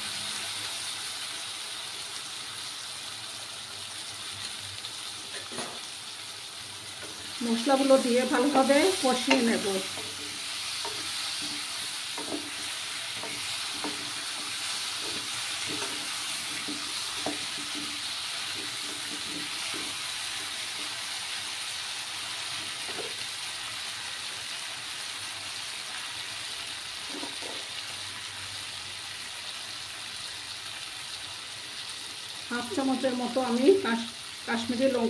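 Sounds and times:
food sizzling in hot oil: 0.0 - 35.0
wooden spatula scraping a pan: 7.0 - 21.0.

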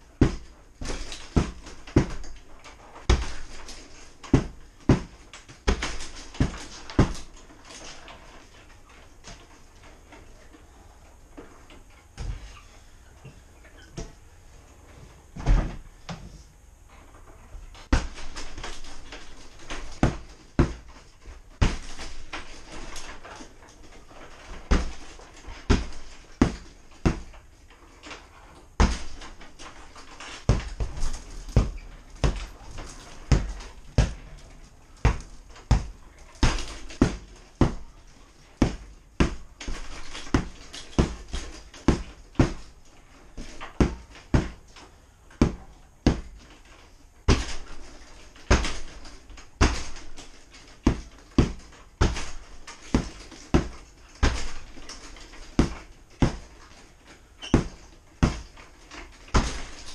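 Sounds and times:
strikes on punching bag: 3.1 - 7.3, 28.8 - 29.4, 45.4 - 46.4, 49.6 - 56.5, 57.4 - 58.5.

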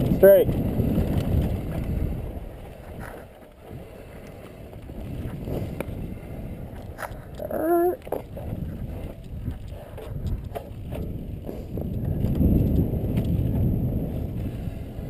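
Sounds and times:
bike tyre and drivetrain rumble: 0.0 - 15.0
wind rushing over microphone: 0.0 - 15.0
bike knocking over bumps: 6.8 - 14.3.

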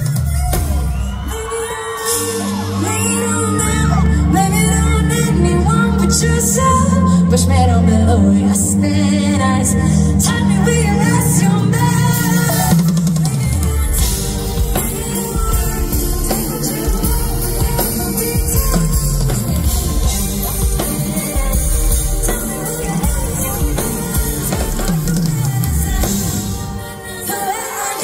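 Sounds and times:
drum kit: 0.0 - 4.7, 11.5 - 28.0
live band playing pop music: 0.0 - 28.0.

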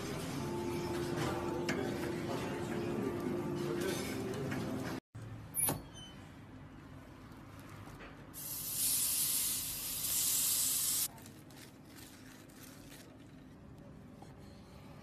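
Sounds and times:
contact grill hissing and sizzling: 8.4 - 11.1.

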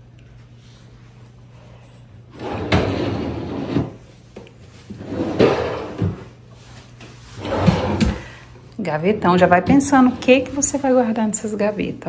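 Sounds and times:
wooden drawers sliding: 4.9 - 6.3, 7.4 - 8.3.

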